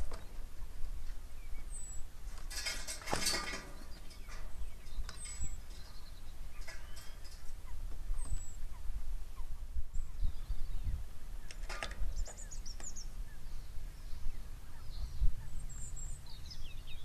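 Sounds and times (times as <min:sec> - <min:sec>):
wind rumble on microphone: 0:00.0 - 0:17.0
wings flapping and scuffling: 0:02.2 - 0:08.9.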